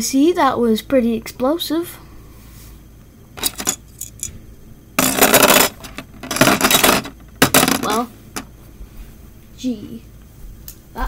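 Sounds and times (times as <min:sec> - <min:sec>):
plastic and metal parts clattering: 0:03.4 - 0:04.3, 0:05.0 - 0:08.5.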